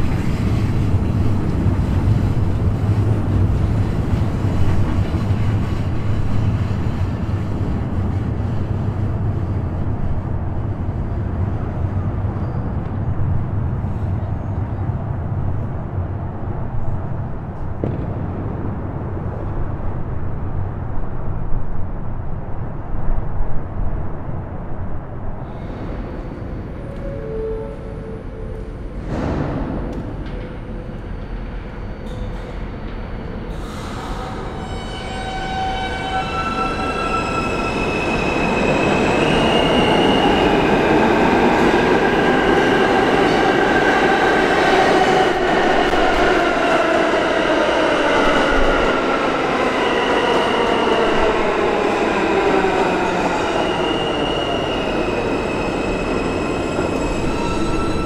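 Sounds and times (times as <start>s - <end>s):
city low rumble: 0.0s - 58.0s
high wheel squeal: 33.6s - 40.8s, 53.1s - 58.0s.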